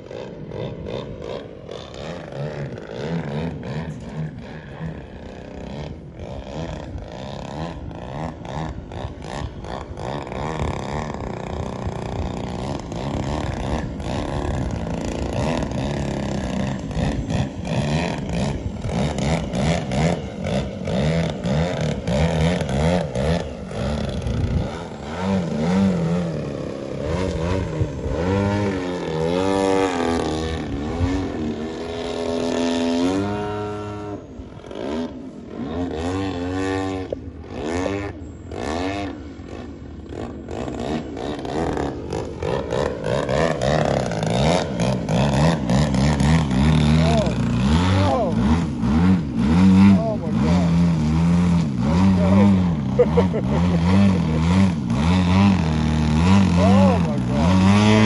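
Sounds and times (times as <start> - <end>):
model plane engine and propeller: 0.0 - 58.0.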